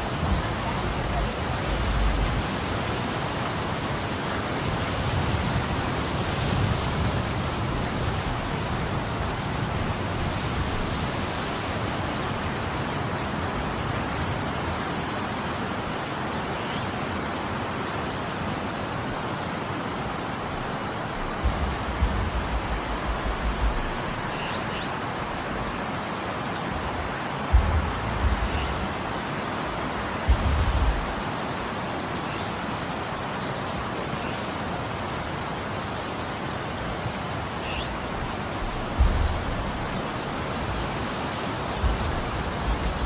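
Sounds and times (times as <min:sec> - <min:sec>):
wind buffeting microphone: 0:00.0 - 0:15.4, 0:19.1 - 0:31.8, 0:37.9 - 0:43.0
snowstorm hiss: 0:00.0 - 0:43.0.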